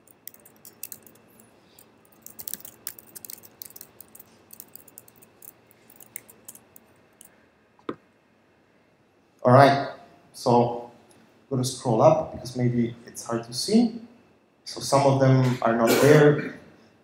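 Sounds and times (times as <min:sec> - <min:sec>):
typing on computer keyboard: 0:00.0 - 0:01.4, 0:02.1 - 0:07.3.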